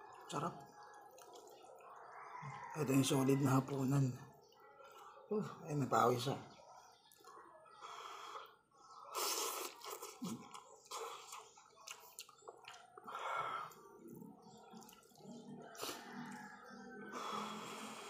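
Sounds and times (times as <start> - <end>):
wet chewing: 0.0 - 2.7, 6.8 - 18.0
person slurping noodles: 9.1 - 11.6.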